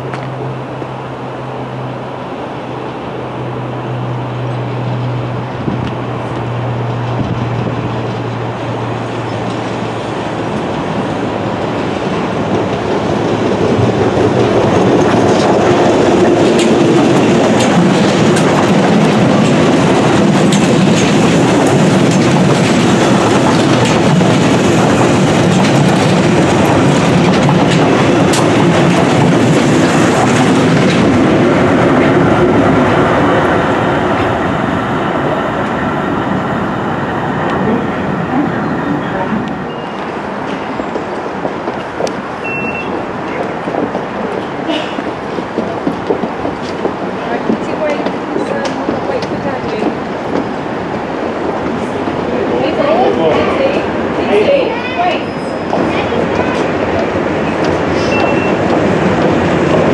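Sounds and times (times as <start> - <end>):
train passing: 0.0 - 59.9
wheels clicking over rail joints: 4.8 - 34.4, 39.2 - 53.5.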